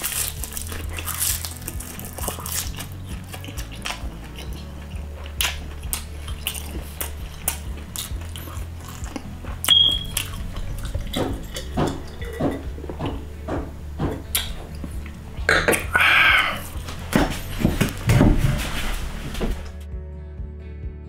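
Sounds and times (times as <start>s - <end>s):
chewing with mouth clicks: 0.0s - 17.8s
steady low hum: 0.1s - 19.8s
short high-pitched beep: 9.7s - 10.1s.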